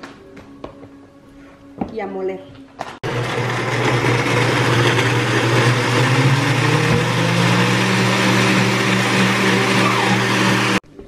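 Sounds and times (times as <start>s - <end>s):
blender running: 3.0s - 10.8s.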